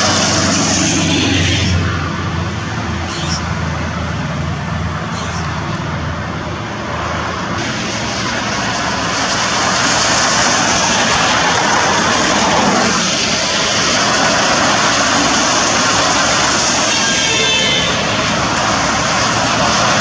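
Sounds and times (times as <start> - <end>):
traffic on wet road: 0.0 - 20.0.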